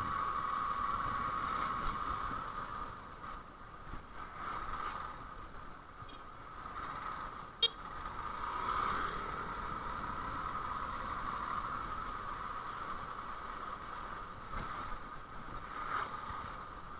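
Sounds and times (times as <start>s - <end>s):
road traffic noise: 0.0s - 16.9s.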